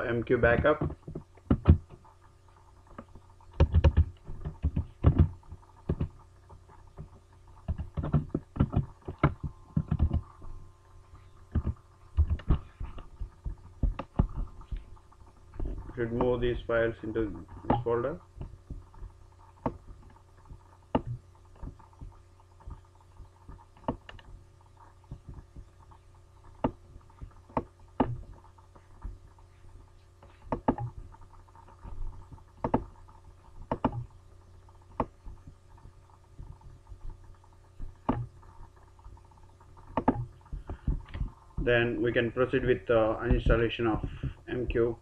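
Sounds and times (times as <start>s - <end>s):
low electrical hum: 0.0s - 45.0s
computer mouse clicks: 2.9s - 6.2s, 7.0s - 10.3s, 33.7s - 34.1s, 39.9s - 41.3s.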